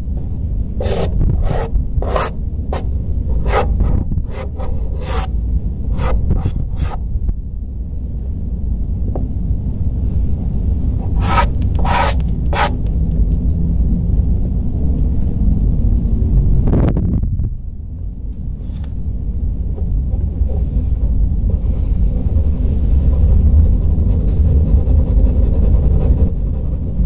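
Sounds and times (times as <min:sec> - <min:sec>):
low background rumble: 0:00.0 - 0:27.0
pencil strokes on paper: 0:00.8 - 0:02.3, 0:04.3 - 0:05.3, 0:11.0 - 0:12.8.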